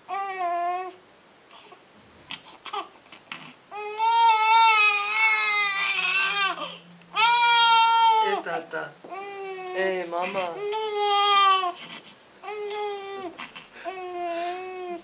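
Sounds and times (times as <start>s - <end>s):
baby crying: 0.1s - 8.4s, 9.1s - 15.0s.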